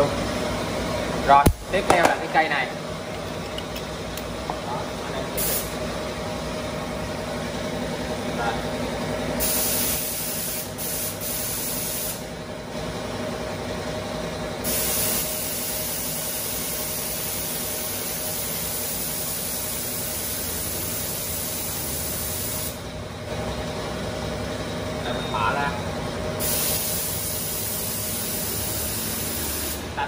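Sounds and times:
air compressor humming: 0:00.0 - 0:30.0
air spray gun hissing: 0:05.4 - 0:05.8, 0:09.4 - 0:12.3, 0:14.6 - 0:22.8, 0:26.4 - 0:29.9.

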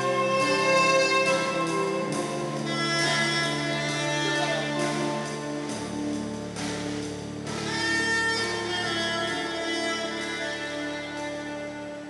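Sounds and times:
bass line: 0:00.0 - 0:12.0
drums: 0:00.0 - 0:12.0
keyboard: 0:00.0 - 0:12.0
soprano saxophone: 0:00.0 - 0:12.0
violin: 0:00.0 - 0:12.0.

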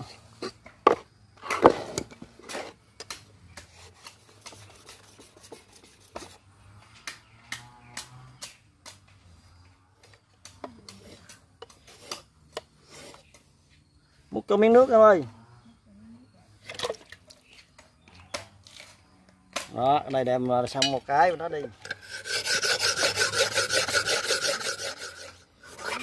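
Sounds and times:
knife scraping on whetstone: 0:00.0 - 0:02.8, 0:03.6 - 0:06.4, 0:10.9 - 0:13.4, 0:21.8 - 0:26.0.

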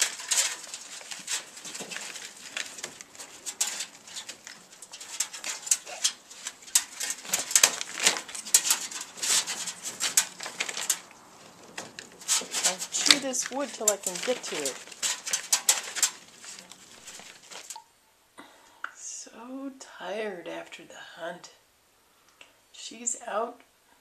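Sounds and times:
scrabbling in wood and tarp: 0:00.0 - 0:17.8.

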